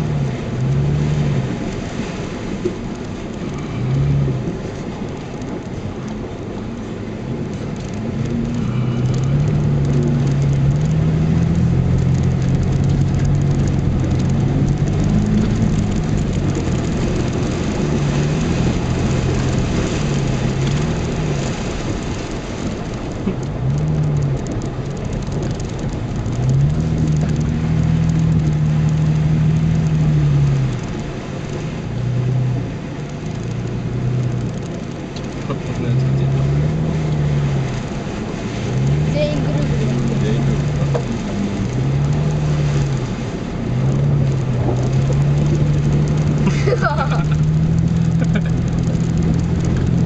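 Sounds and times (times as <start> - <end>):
engine revving: 0.0 - 2.0, 7.8 - 21.8, 23.2 - 31.0, 31.7 - 50.0
water and mud splashing: 0.0 - 50.0.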